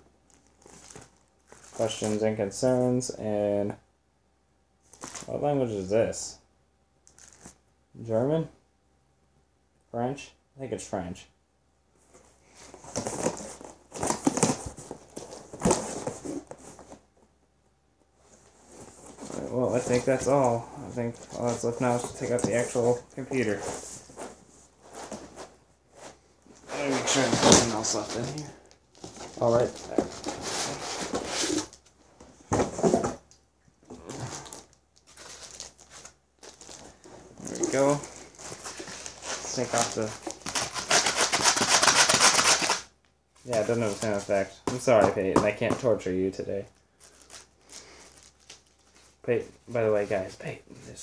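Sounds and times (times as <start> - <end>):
paper and cardboard rustling: 12.0 - 17.0, 18.2 - 33.2, 33.9 - 42.8.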